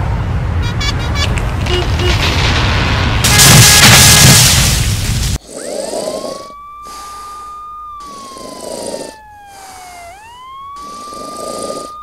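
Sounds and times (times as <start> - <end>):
cartoon snoring with whistle: 5.4 - 12.0.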